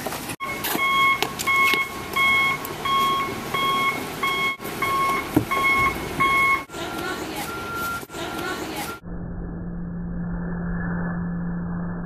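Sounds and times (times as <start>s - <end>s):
electronic beeper beeping: 0.4s - 12.0s.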